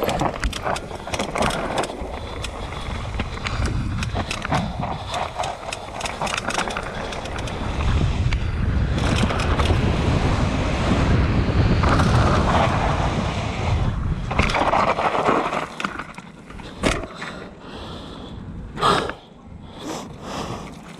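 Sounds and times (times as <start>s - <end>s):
bike clicks and knocks: 0.0s - 9.9s, 14.3s - 15.1s, 15.7s - 17.4s
wind on microphone: 0.0s - 15.2s
bike tyre rumble: 0.0s - 20.9s.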